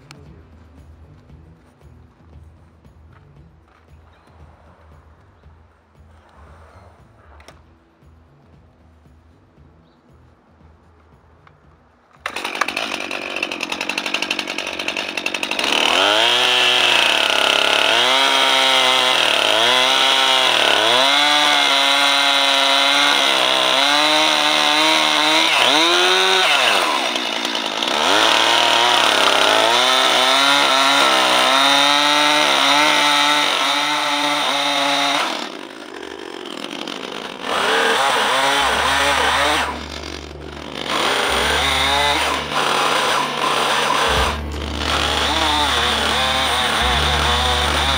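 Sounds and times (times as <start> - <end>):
chainsaw cutting wood: 11.6 - 47.9.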